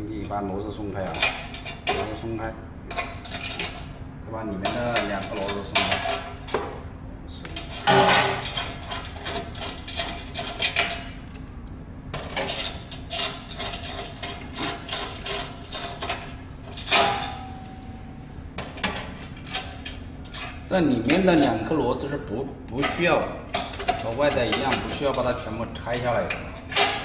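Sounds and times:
metal clank ringing: 0:07.8 - 0:08.6, 0:16.8 - 0:17.9.

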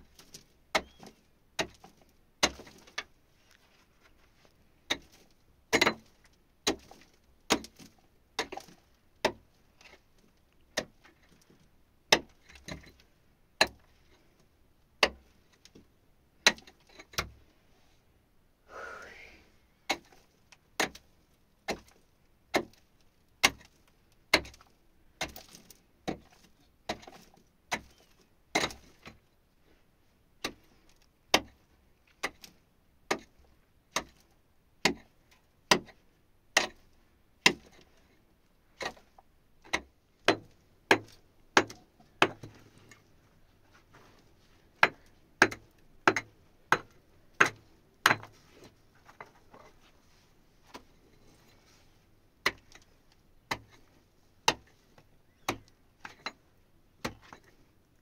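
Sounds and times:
pickaxe striking stony earth: 0:00.1 - 0:03.0, 0:04.9 - 0:09.5, 0:21.7 - 0:22.8, 0:23.4 - 0:24.6, 0:25.2 - 0:26.3, 0:28.6 - 0:29.1, 0:31.3 - 0:31.6, 0:32.2 - 0:34.2, 0:37.4 - 0:37.8, 0:39.7 - 0:42.6, 0:44.8 - 0:48.4, 0:57.0 - 0:57.5.

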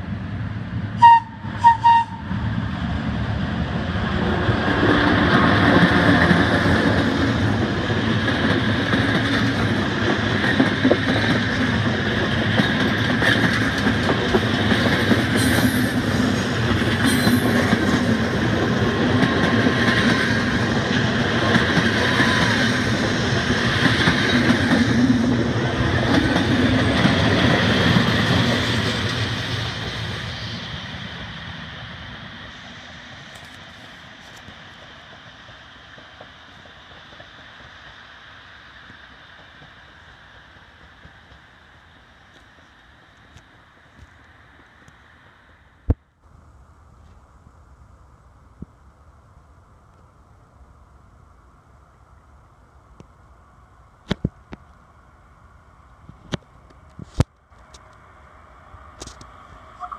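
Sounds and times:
train wheels rattling on rails: 0:00.0 - 0:45.6
locomotive horn blasts: 0:01.0 - 0:02.3.

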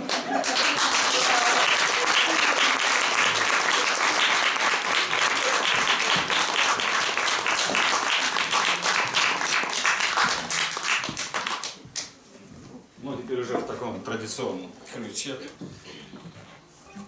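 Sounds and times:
audience applauding: 0:00.0 - 0:11.8.

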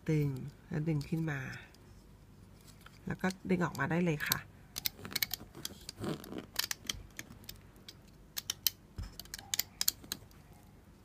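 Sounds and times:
sharp clicks and snaps: 0:02.9 - 0:10.7.

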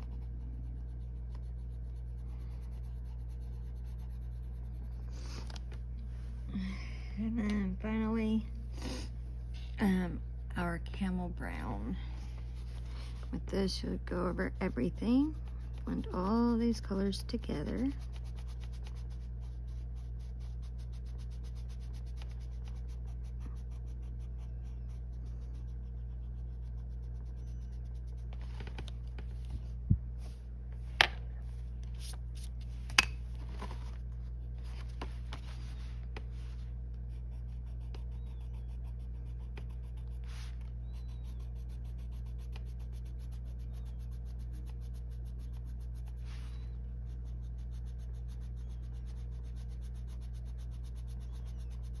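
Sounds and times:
colored pencil scratching on paper: 0:00.0 - 0:05.6, 0:11.0 - 0:29.5, 0:34.4 - 0:52.0
steady low hum: 0:00.0 - 0:52.0.

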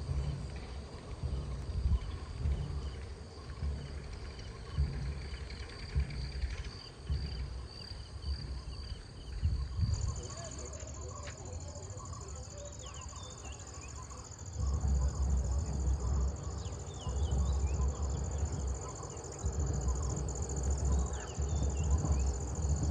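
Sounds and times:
microphone rumble: 0:00.0 - 0:11.1, 0:13.1 - 0:22.9
insect pulsing chirp: 0:00.0 - 0:22.9
insect trill: 0:00.0 - 0:22.9
bird calls: 0:00.1 - 0:22.9.

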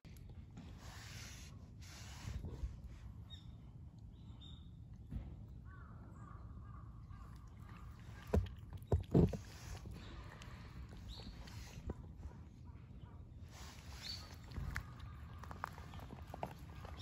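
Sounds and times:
low steady outdoor background: 0:00.0 - 0:17.0
faint crow cawing: 0:05.6 - 0:08.0.

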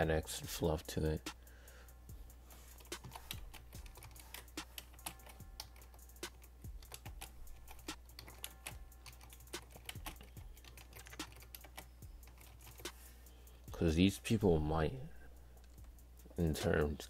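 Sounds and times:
low steady hum: 0:00.0 - 0:17.0
keyboard typing: 0:02.8 - 0:13.0.

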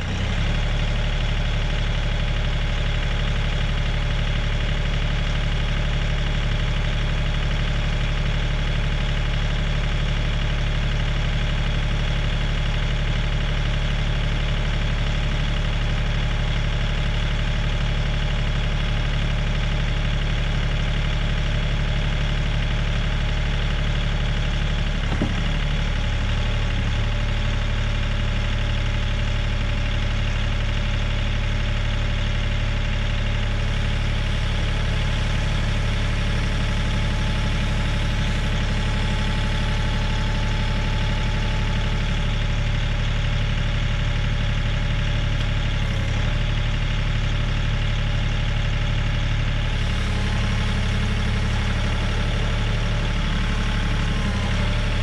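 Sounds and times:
tractor diesel engine idling: 0:00.0 - 0:55.0.

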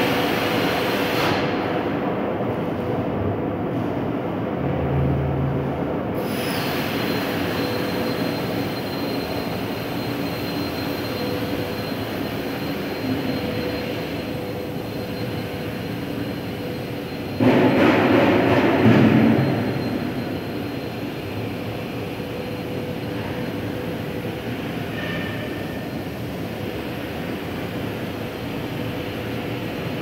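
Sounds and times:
factory machinery running: 0:00.0 - 0:30.0
rush of mechanical noise: 0:06.2 - 0:26.0
thin high whine: 0:06.4 - 0:18.0.

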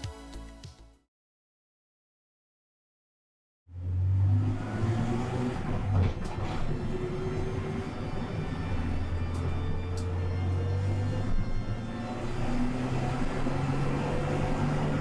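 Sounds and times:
car engine droning: 0:03.7 - 0:15.0
road noise: 0:03.7 - 0:15.0.

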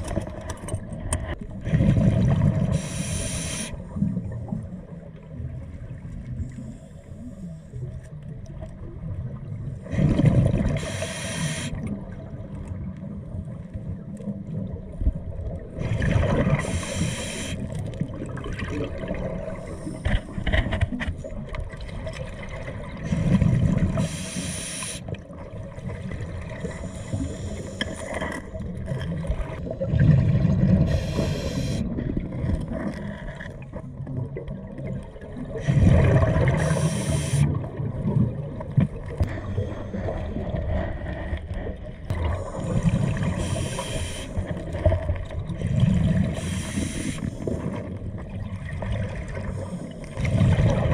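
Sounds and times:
diver breathing through regulator: 0:02.7 - 0:04.0, 0:10.8 - 0:11.8, 0:15.9 - 0:17.7, 0:23.1 - 0:25.1, 0:26.6 - 0:28.5, 0:30.8 - 0:31.9, 0:35.6 - 0:37.6, 0:39.3 - 0:44.6, 0:46.2 - 0:47.6
muffled underwater background: 0:30.7 - 0:32.1, 0:35.6 - 0:37.5, 0:42.2 - 0:45.2.

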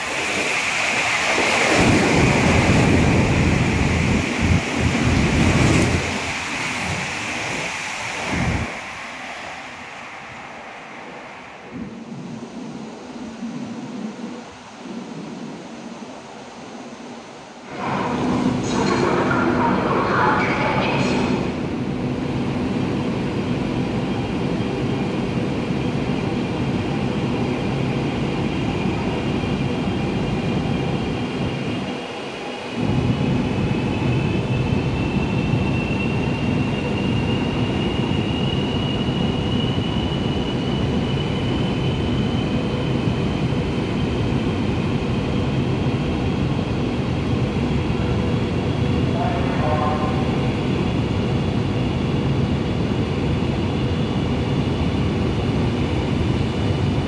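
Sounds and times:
electric train rumbling: 0:00.0 - 0:57.0
train whine rising in pitch: 0:27.8 - 0:45.8.

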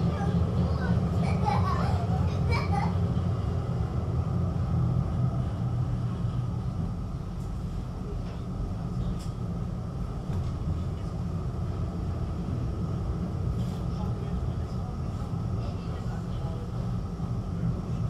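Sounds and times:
tram running on rails: 0:00.0 - 0:18.0.

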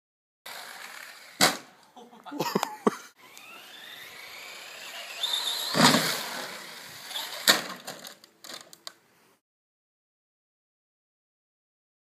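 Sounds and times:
toy truck crashing: 0:00.5 - 0:01.7, 0:03.3 - 0:08.8
electric motor whining: 0:03.2 - 0:07.5.

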